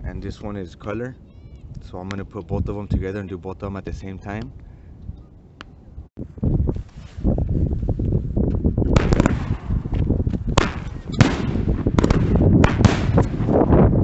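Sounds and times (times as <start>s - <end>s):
continuous low rumble: 0.0s - 14.0s
fireworks shots cracking overhead: 8.9s - 13.7s.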